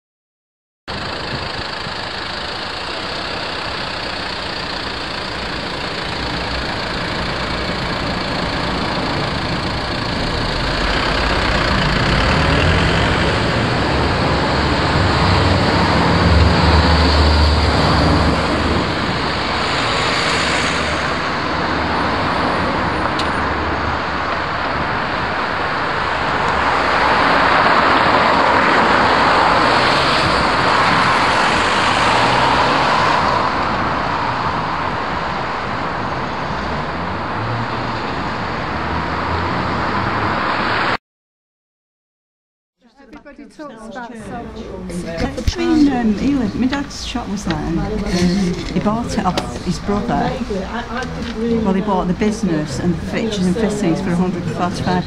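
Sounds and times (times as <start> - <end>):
vehicle deep engine rumble: 0.9 - 40.5, 44.1 - 55.0
road traffic passing: 0.9 - 41.0, 43.8 - 55.0.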